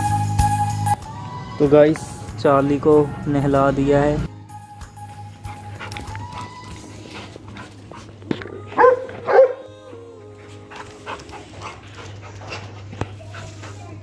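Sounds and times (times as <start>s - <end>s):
soft background music: 0.0s - 12.7s
dog barking: 8.8s - 9.7s.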